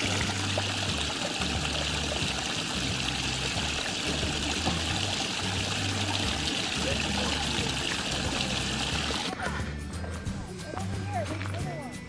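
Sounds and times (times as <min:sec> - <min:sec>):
water splashing onto stones: 0:00.0 - 0:09.3
creek trickling over rocks: 0:00.0 - 0:09.4.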